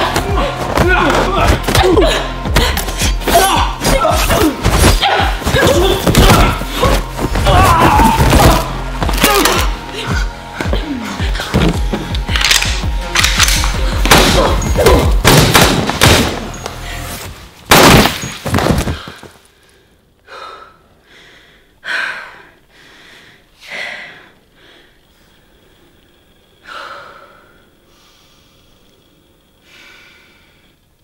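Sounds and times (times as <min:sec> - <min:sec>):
woman breathing heavily: 0:09.8 - 0:12.3, 0:18.8 - 0:25.9, 0:26.6 - 0:28.8, 0:29.6 - 0:30.9.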